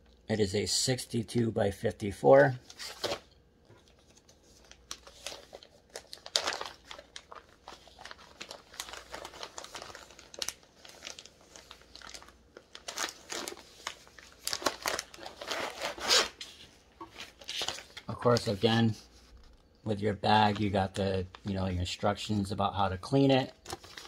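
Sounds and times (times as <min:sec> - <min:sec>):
packaging crinkling: 0:02.7 - 0:19.8, 0:23.5 - 0:24.0.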